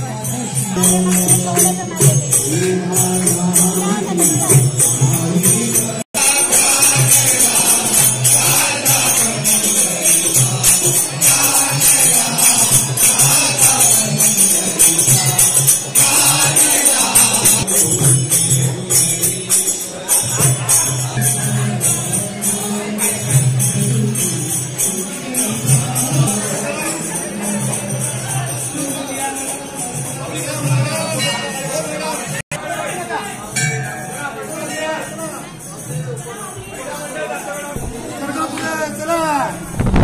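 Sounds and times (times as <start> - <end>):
group singing: 0.0 - 19.7
metallic jingling hand percussion: 0.0 - 40.0.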